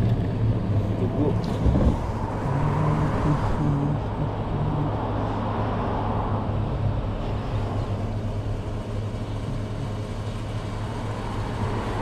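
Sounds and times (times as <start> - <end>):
fuel pump humming: 6.4 - 12.0.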